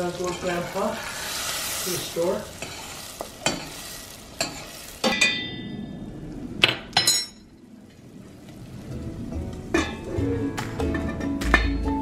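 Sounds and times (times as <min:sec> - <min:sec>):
onion sizzling in butter: 0:00.0 - 0:05.4.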